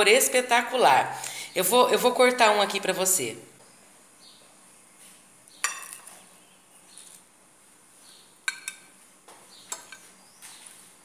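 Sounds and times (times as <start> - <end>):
cutlery clinking on ceramic plate: 5.6 - 6.2, 8.5 - 8.9.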